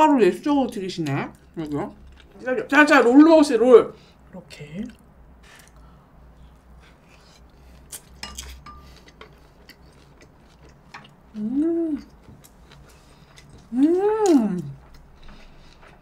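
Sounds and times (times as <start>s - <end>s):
person chewing with mouth clicks: 6.9s - 16.0s
person humming mmm: 11.3s - 12.2s, 13.7s - 14.8s.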